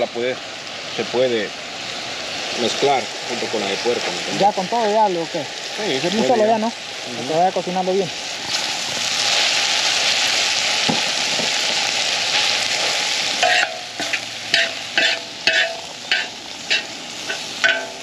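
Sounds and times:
meat sizzling: 0.0s - 18.0s
metal spoon scraping disc: 13.4s - 18.0s.

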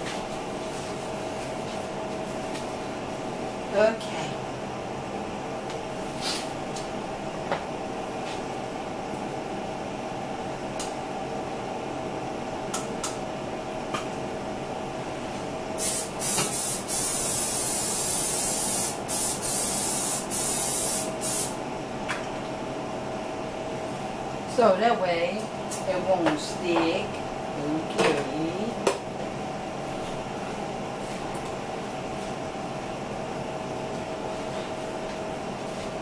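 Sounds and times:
aerosol spray hissing: 15.8s - 21.5s.

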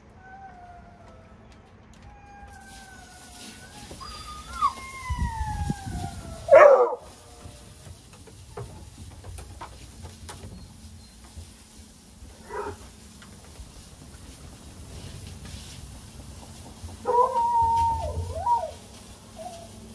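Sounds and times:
hounds whining: 0.0s - 7.8s, 12.3s - 12.9s, 17.0s - 19.9s
dog barking: 6.5s - 7.1s.

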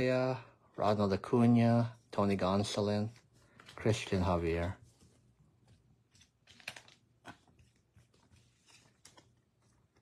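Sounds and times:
trading cards and foil pack handled: 5.6s - 10.0s.

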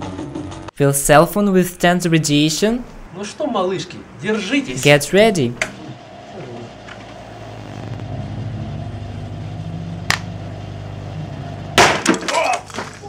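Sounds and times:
microwave oven humming: 2.7s - 13.0s
phone battery bursting with crackling: 11.8s - 12.9s.

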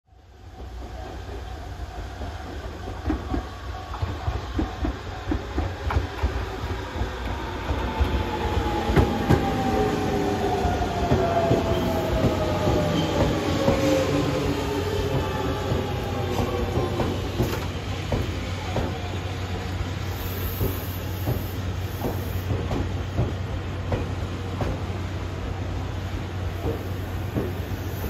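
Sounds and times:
train rumble: 0.2s - 28.0s
train wheels clacking over rail joints: 15.0s - 19.1s.

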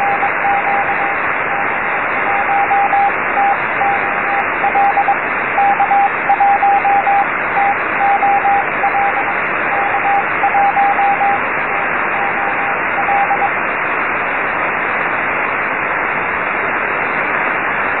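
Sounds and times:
morse code beeping: 0.0s - 13.6s
radio receiver hiss: 0.0s - 18.0s.

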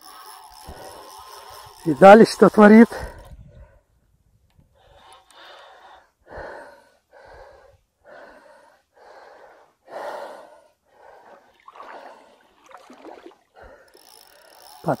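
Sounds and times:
man breathing hard: 4.7s - 12.5s, 13.5s - 14.7s.

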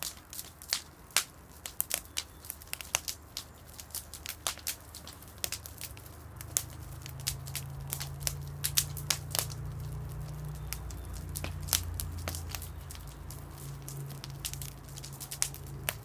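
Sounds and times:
bonfire crackling and popping: 0.0s - 16.0s
low steady rumble: 4.8s - 16.0s.

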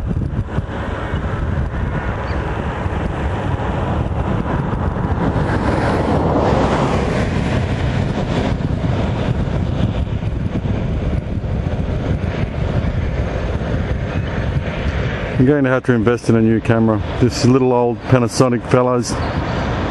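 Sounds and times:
steady low rumble: 0.0s - 19.9s
road vehicle passing: 0.4s - 10.6s.

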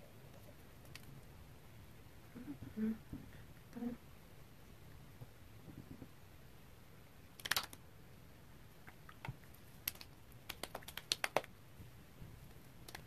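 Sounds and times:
fingertips tapping on skin: 9.1s - 11.5s.

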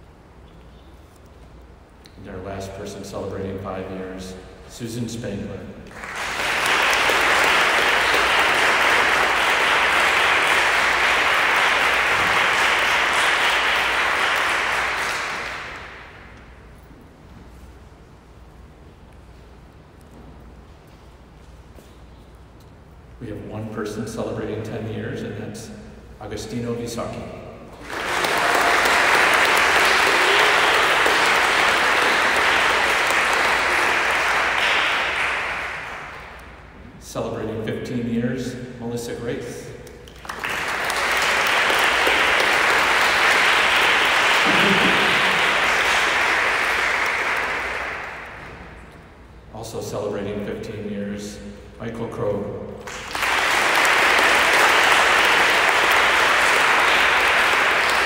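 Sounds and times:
audience applause: 5.9s - 16.3s, 27.8s - 36.4s, 40.1s - 48.8s, 52.8s - 58.0s.

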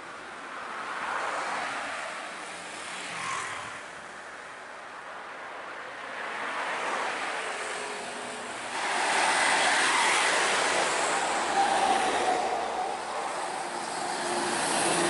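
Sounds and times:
road traffic: 0.0s - 15.0s
bus passing close: 7.3s - 15.0s.

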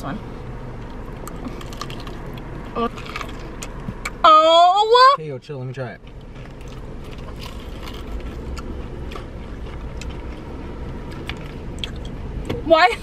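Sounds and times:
car engine idling: 0.0s - 13.0s
crunchy chewing: 1.1s - 4.2s, 6.0s - 12.2s.

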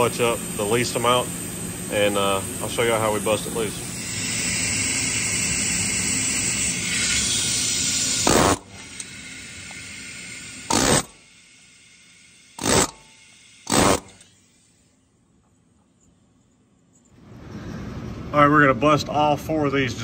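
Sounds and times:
pneumatic air hammer hammering: 2.2s - 11.5s, 12.4s - 14.8s.

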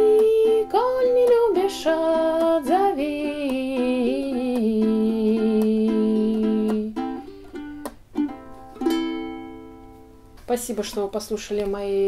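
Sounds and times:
woman singing: 0.0s - 7.2s, 10.5s - 12.0s
ukulele strumming: 0.0s - 12.0s.

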